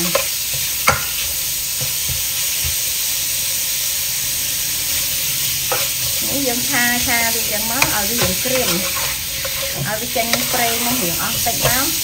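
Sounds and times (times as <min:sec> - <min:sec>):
meat sizzling in a wok: 0:00.0 - 0:12.0
spatula knocking against pan: 0:00.1 - 0:01.2.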